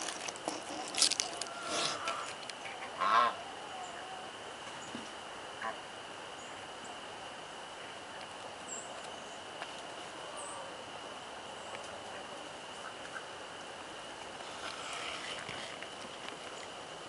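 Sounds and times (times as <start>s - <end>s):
farmyard bird call: 0.5s - 5.0s.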